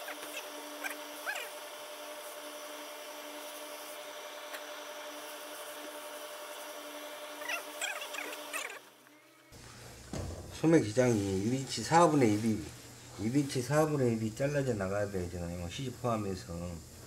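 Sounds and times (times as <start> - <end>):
steady hiss and low hum: 8.9 - 17.0.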